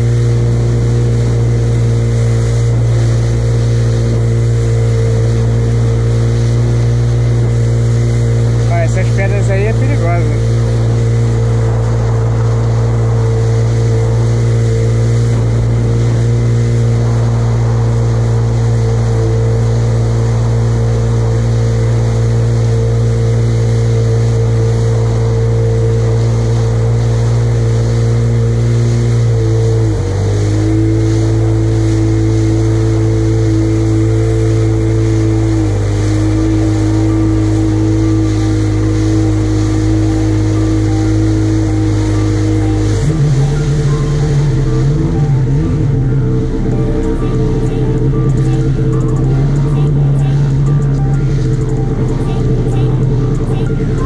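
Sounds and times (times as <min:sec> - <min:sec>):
jet ski engine running: 0:00.0 - 0:54.0
water rushing along hull: 0:00.0 - 0:54.0.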